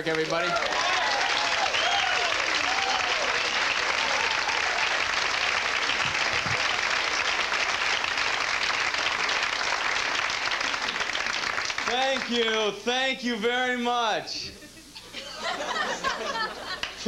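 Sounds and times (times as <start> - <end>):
audience applauding: 0.0 - 12.6, 16.4 - 17.0.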